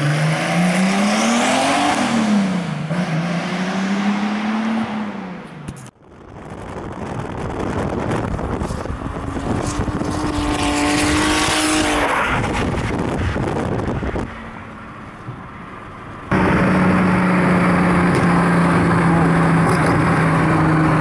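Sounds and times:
car engine revving passing: 0:08.9 - 0:14.2
low engine drone: 0:14.0 - 0:21.0.

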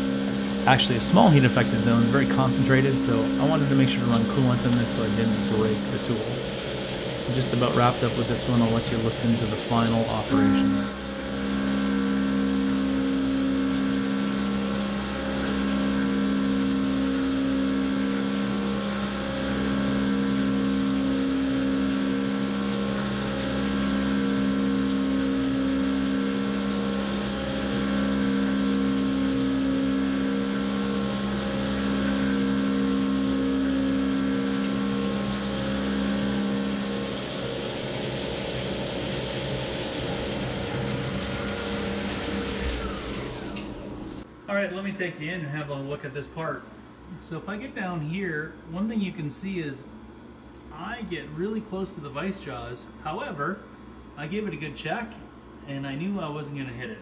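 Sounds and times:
coolant spraying: 0:00.0 - 0:44.3
milling machine cutting hum: 0:00.0 - 0:44.3.

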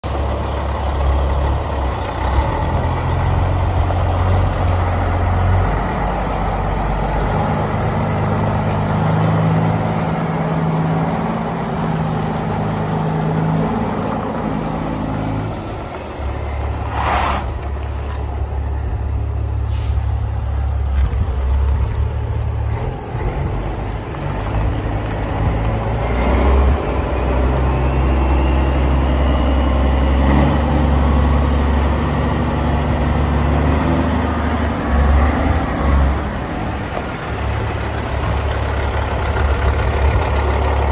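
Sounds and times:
diesel truck engine idling: 0:00.0 - 0:40.9
air brake hiss: 0:19.6 - 0:20.2.

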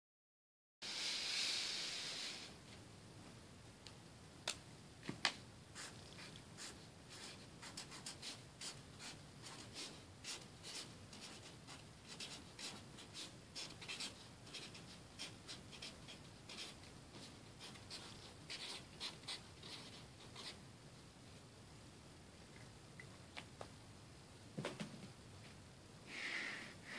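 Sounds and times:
marker scratching on tape: 0:05.8 - 0:20.6.

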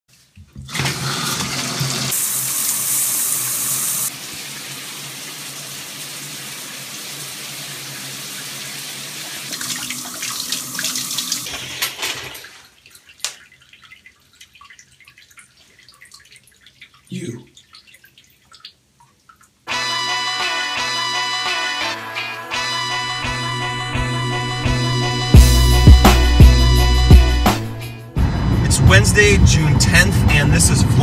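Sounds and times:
shower water gushing: 0:00.6 - 0:19.5
water dripping: 0:12.1 - 0:19.7.

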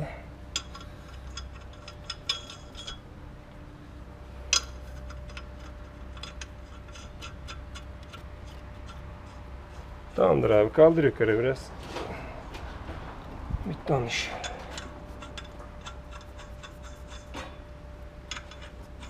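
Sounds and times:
low hum: 0:00.0 - 0:19.0
metal wheel nuts clinking: 0:00.5 - 0:03.1, 0:04.4 - 0:11.2, 0:14.1 - 0:19.0.

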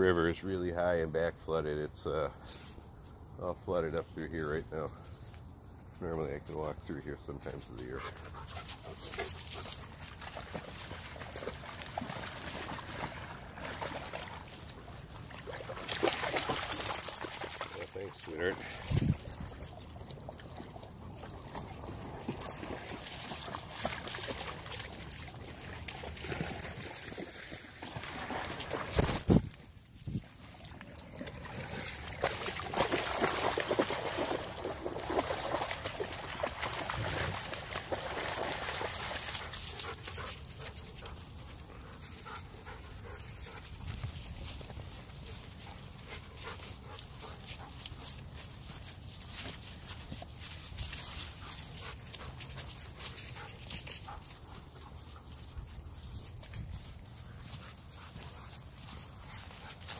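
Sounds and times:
dog panting: 0:08.0 - 0:09.9, 0:39.3 - 0:43.8, 0:45.2 - 0:48.4, 0:51.4 - 0:55.6, 0:57.3 - 0:59.9
dogs splashing in water: 0:08.1 - 0:56.5
footsteps through fallen leaves: 0:43.3 - 0:57.9.

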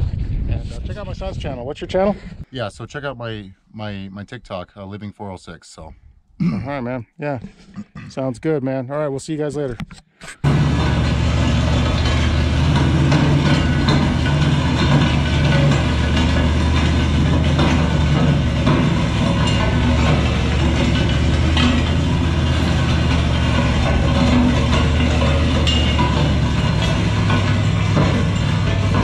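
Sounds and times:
sharp knocks: 0:10.4 - 0:29.0
steel frame scraping over gravel: 0:10.4 - 0:29.0
truck engine running: 0:10.4 - 0:29.0.

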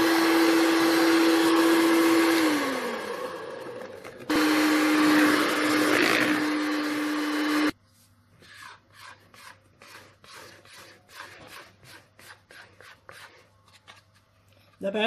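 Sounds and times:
electric hand mixer: 0:00.0 - 0:07.8
scraper scraping batter in bowl: 0:08.0 - 0:14.3.

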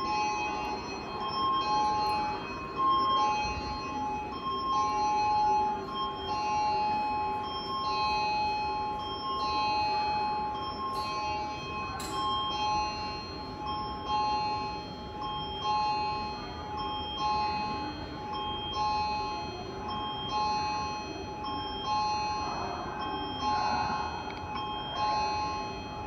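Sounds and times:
electronic bell-like chime: 0:00.0 - 0:26.0.

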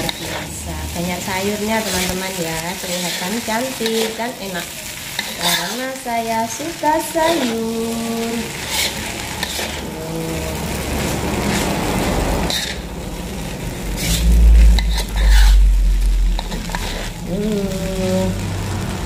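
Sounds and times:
spatula scraping a wok: 0:00.0 - 0:18.2
frying sizzle: 0:00.0 - 0:19.0
deep rumble: 0:10.0 - 0:19.0.

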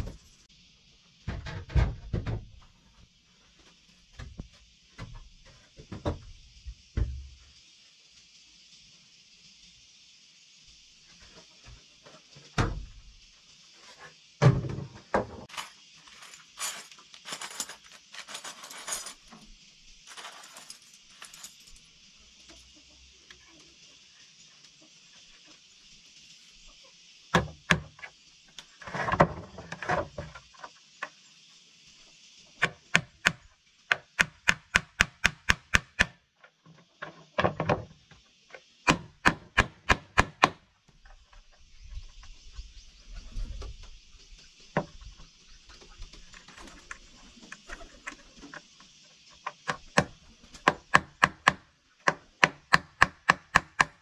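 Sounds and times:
steady high hiss: 0:00.0 - 0:01.4, 0:02.1 - 0:53.9
knocks and strikes on wood: 0:32.6 - 0:36.2, 0:38.8 - 0:40.6, 0:49.6 - 0:54.0.

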